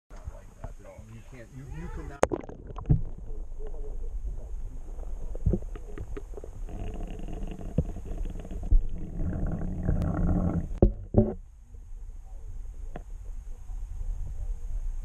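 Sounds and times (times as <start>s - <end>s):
muffled underwater rumble: 0.1s - 15.0s
sharp knocks and clicks: 10.8s - 11.4s.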